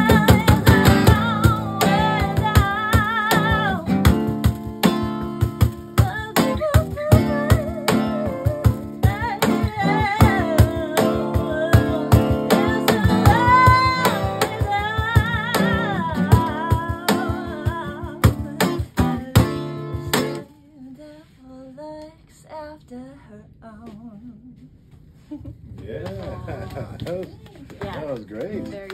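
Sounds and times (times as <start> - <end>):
person singing: 0.0 - 4.0, 6.0 - 19.8
cajon beats: 0.0 - 20.4, 25.5 - 28.9
acoustic guitar strumming: 0.0 - 20.5.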